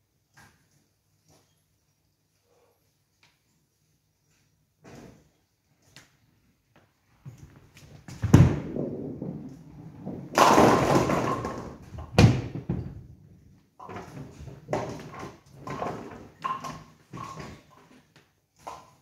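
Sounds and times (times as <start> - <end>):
bowling ball thud and rolling: 7.9 - 17.7
pins crashing and clattering: 8.2 - 13.1.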